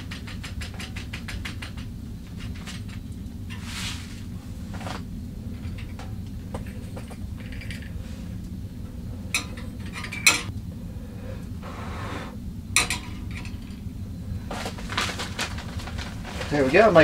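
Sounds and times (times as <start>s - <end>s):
low steady rumble: 1.5s - 17.0s
plastic bag crinkling: 14.5s - 17.0s.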